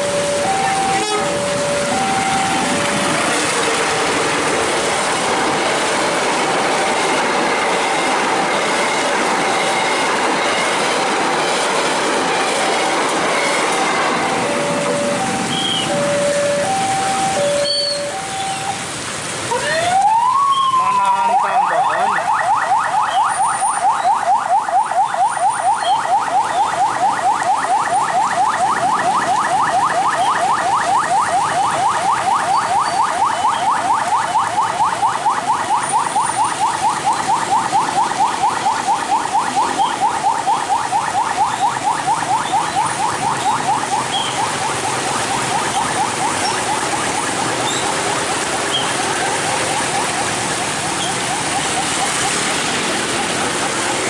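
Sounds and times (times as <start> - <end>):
level crossing bell ringing: 14.4 - 18.7.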